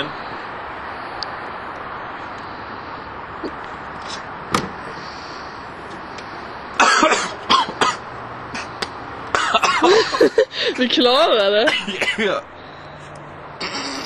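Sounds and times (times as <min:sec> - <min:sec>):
steady background noise: 0:00.0 - 0:14.0
person coughing: 0:06.8 - 0:08.0, 0:09.4 - 0:10.2, 0:11.7 - 0:12.4.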